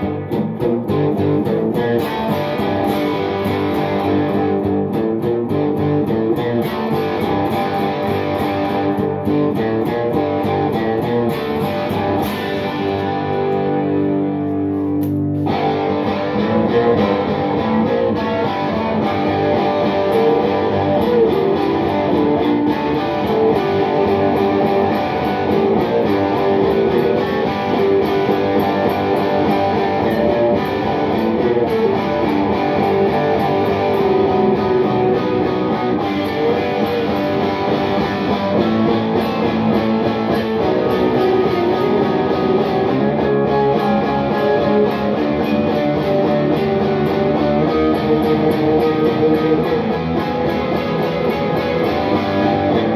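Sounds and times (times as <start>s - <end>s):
electric guitar playing: 0.0s - 52.9s.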